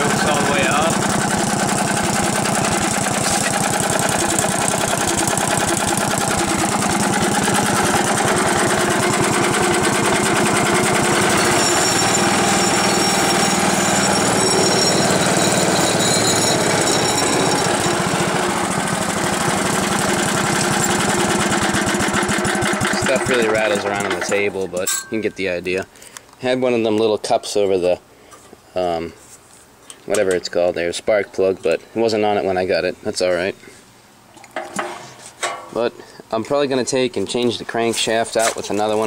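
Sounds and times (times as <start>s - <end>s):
single-cylinder engine running: 0.0s - 24.6s.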